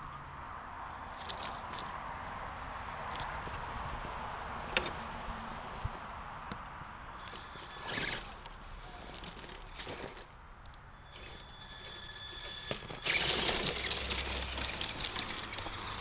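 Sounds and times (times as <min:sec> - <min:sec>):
rc car tyres and drivetrain hiss: 0:06.9 - 0:16.0
scrape on dirt and stones: 0:07.1 - 0:10.4, 0:11.0 - 0:16.0.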